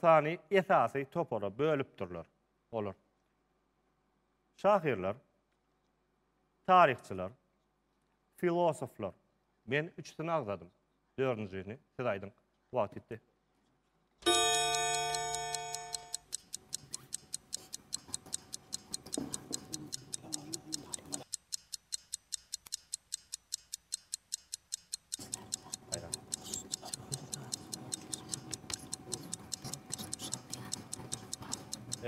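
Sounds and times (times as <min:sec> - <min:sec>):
quiz timer signal tone: 0:14.3 - 0:18.8
clock timer ticking fast: 0:14.3 - 0:32.0.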